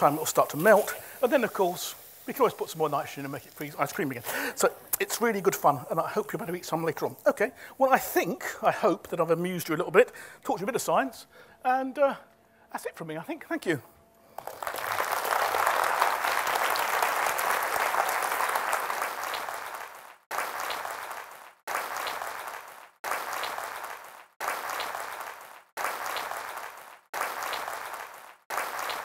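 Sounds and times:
audience applause: 14.4s - 29.0s.

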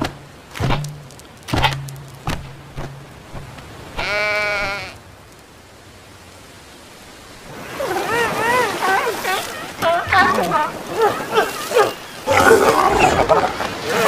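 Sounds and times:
hollow bouncing thumps: 0.0s - 3.6s
wavering goat bleat: 4.0s - 5.0s.

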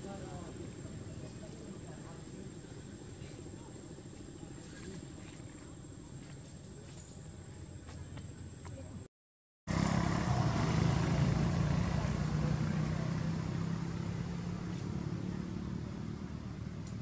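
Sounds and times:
vehicle engine running loudly: 9.7s - 17.0s.

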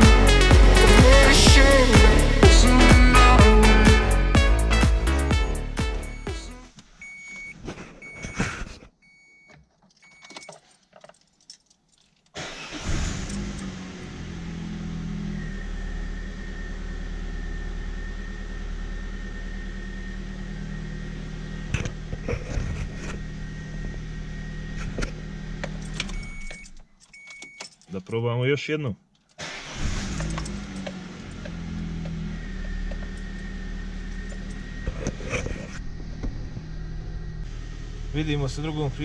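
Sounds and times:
car engine starting and idling: 0.0s - 8.2s, 12.4s - 27.9s, 29.2s - 39.0s
keys jangling: 9.7s - 12.4s, 13.2s - 13.8s, 25.6s - 28.1s, 30.0s - 31.6s, 34.0s - 34.8s.

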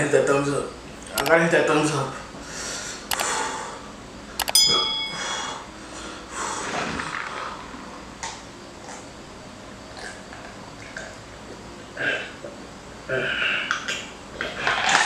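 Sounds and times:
bell ding: 4.4s - 5.6s.

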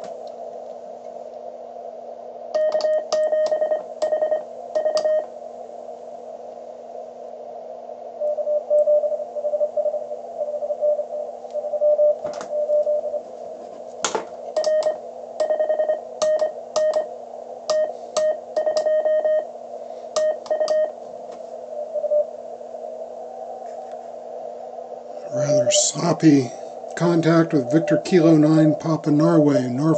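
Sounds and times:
low hum: 0.0s - 29.9s
receiver hiss: 0.0s - 29.9s
morse code tone: 2.6s - 5.3s, 14.6s - 17.1s, 17.7s - 19.5s, 20.2s - 21.0s.

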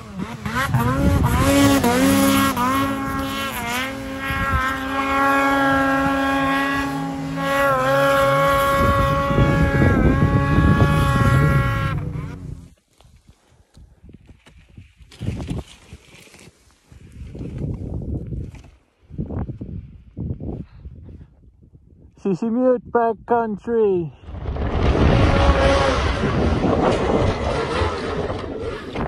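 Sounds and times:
second engine running lower: 0.0s - 12.7s
snowmobile engine revving: 0.0s - 12.8s, 24.4s - 29.0s.

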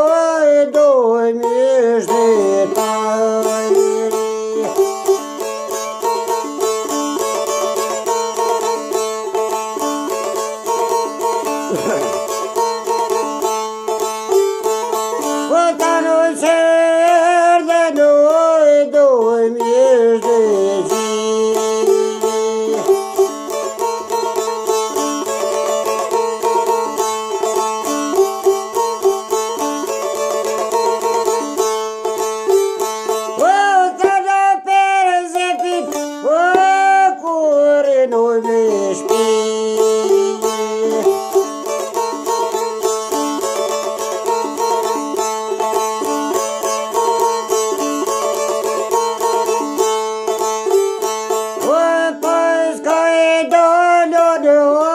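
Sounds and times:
man singing wavering lines: 0.0s - 5.2s, 15.4s - 23.3s, 33.3s - 41.7s
man singing: 0.0s - 13.4s, 15.1s - 28.9s, 32.2s - 42.8s, 43.4s - 54.9s
plucked lute with drone: 0.0s - 54.2s.

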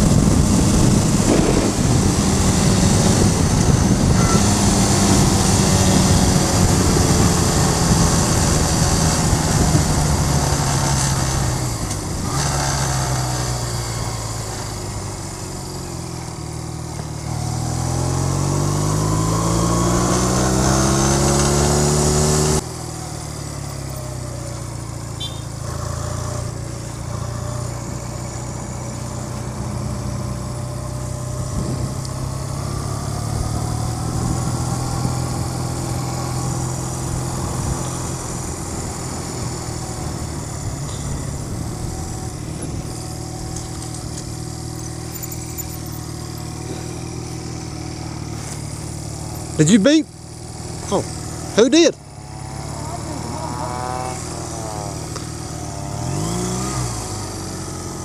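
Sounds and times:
wind noise on microphone: 0.0s - 12.4s, 31.4s - 32.3s, 33.2s - 35.6s, 37.0s - 43.7s
motorcycle engine: 0.0s - 58.0s.

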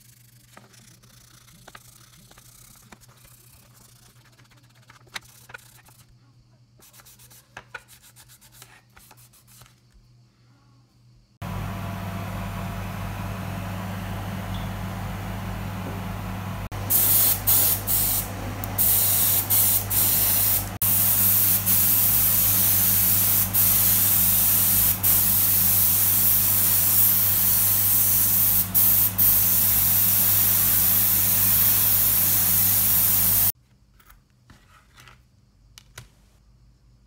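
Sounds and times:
airbrush spraying hiss: 16.9s - 33.6s.

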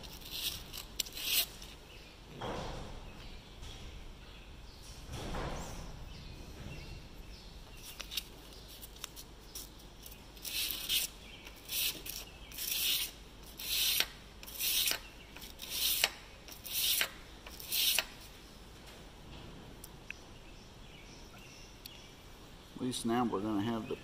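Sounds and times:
knife rasping on abrasive paper: 0.0s - 1.6s, 10.4s - 18.1s.

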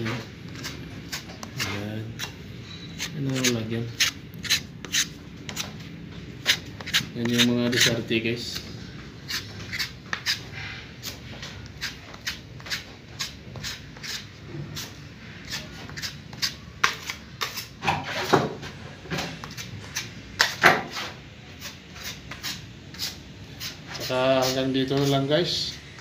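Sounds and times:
putty knife scraping drywall: 3.0s - 5.7s.

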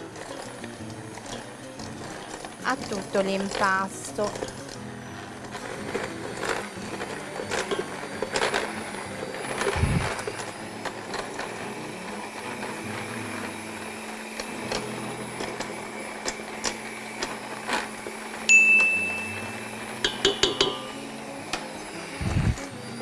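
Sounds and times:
electric hand mixer running: 0.0s - 23.0s
beaters clicking against bowl: 18.7s - 21.6s.

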